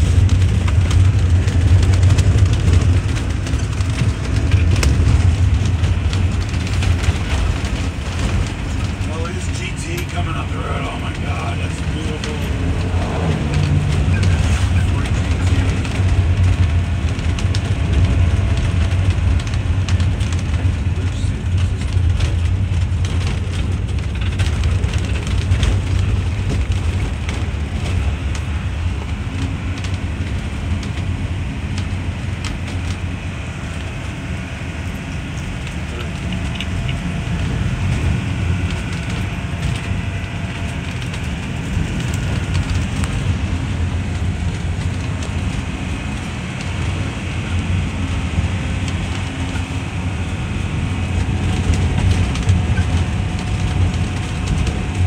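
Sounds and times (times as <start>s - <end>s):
knocks and rattles: 0.0s - 31.1s
road and engine rumble: 0.0s - 55.0s.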